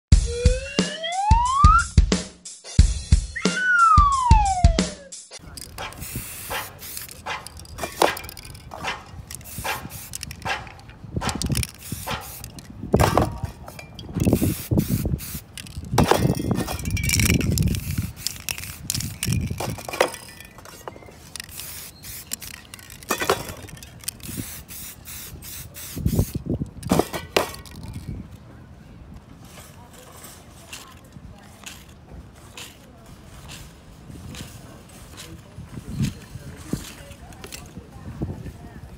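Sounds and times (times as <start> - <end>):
sharp clicks and knocks: 5.4 - 14.4
spray paint cans hissing: 5.4 - 28.2, 30.7 - 35.4.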